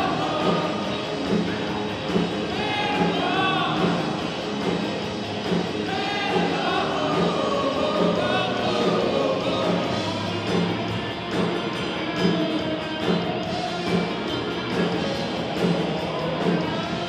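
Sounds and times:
live rock band playing: 0.0s - 17.0s
man singing lead: 2.6s - 4.1s, 5.9s - 10.5s.

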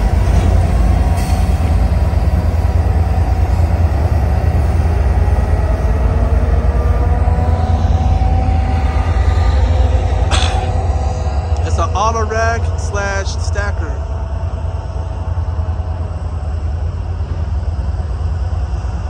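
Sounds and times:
diesel locomotives rumbling past: 0.0s - 19.0s
rail car rolling past: 0.0s - 19.0s
faint drawn-out whine: 4.3s - 19.0s.

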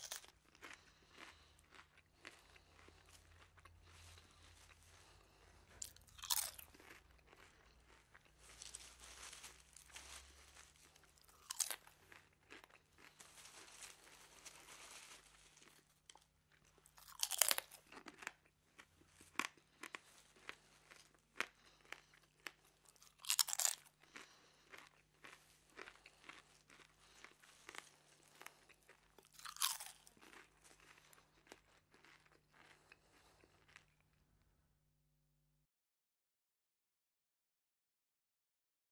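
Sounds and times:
chewing crunches: 0.0s - 34.5s
crunching bites of fries: 0.0s - 34.6s.

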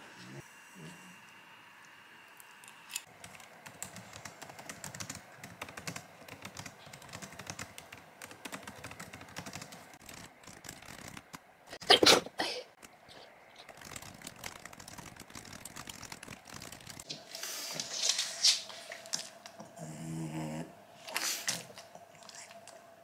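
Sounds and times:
laptop keyboard typing: 3.1s - 11.4s, 12.8s - 17.1s.

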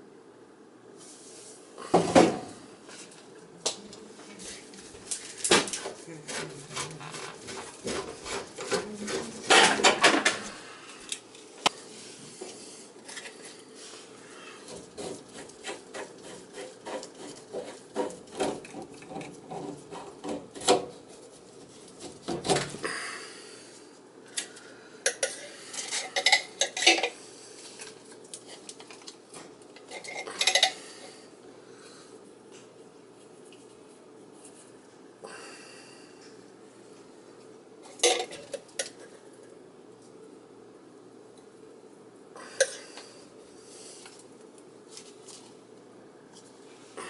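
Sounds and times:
gloved hands rubbing plastic: 4.2s - 9.7s.

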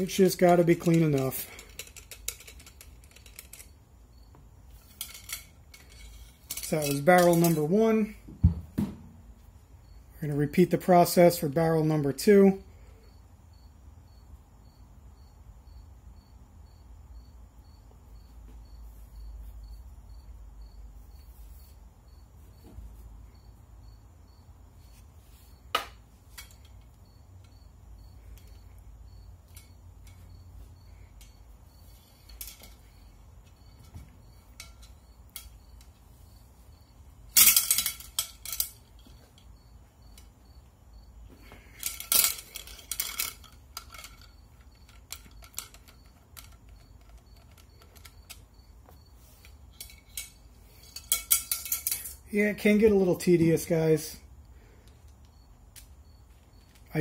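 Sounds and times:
metal rod and attachments clinking: 0.0s - 3.8s, 4.7s - 8.1s, 24.9s - 27.6s, 29.4s - 40.3s, 41.4s - 54.0s
low room hum: 0.0s - 57.0s.

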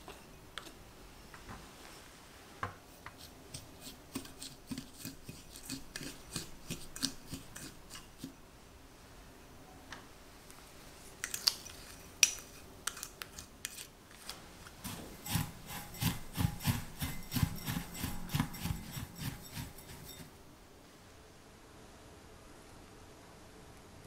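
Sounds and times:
spatula scraping glass bowl: 3.1s - 8.3s, 14.8s - 20.4s
utensils clicking on bowls: 3.5s - 8.3s, 14.8s - 20.3s.

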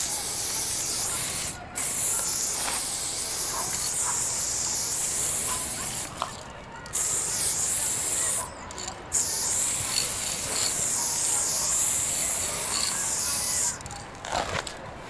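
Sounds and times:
paint sprayer hissing: 0.0s - 13.9s.

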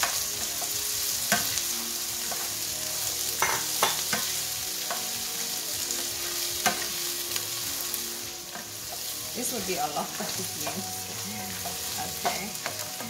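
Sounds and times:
beans and onion sizzling in a pan: 0.0s - 13.0s
spatula scraping and knocking pan: 3.4s - 5.2s.

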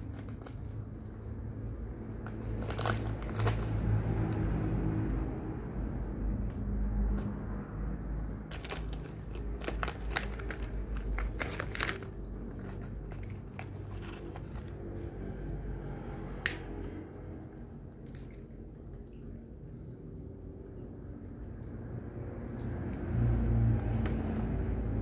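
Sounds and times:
plastic packet crinkling: 0.0s - 1.0s, 2.2s - 4.0s, 8.5s - 14.9s
low steady rumble: 0.0s - 25.0s.

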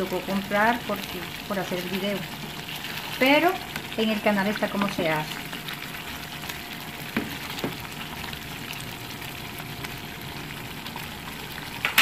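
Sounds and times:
sauce simmering and bubbling: 0.0s - 12.0s
wooden spoon stirring and knocking: 1.0s - 5.6s, 7.1s - 7.8s.

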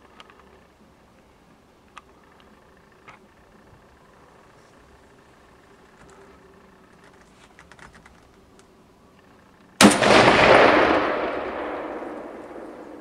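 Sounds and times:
rifle shot echoing: 9.8s - 13.0s.

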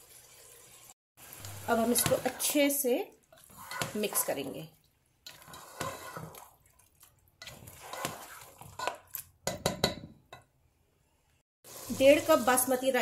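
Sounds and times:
spatula squelching and scraping: 1.4s - 10.0s.

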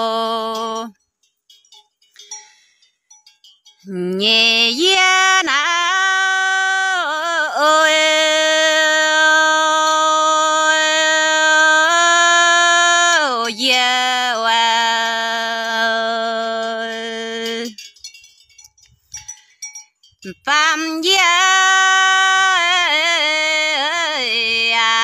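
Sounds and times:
person singing long notes: 3.9s - 17.8s, 20.3s - 25.0s.

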